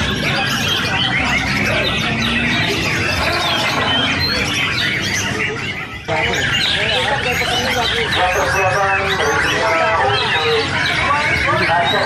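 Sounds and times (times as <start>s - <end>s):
caged songbirds singing: 0.0s - 12.0s.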